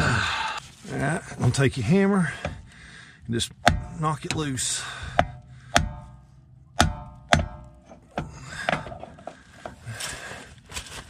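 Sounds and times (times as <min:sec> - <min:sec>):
hammer striking metal: 0:03.6 - 0:08.8.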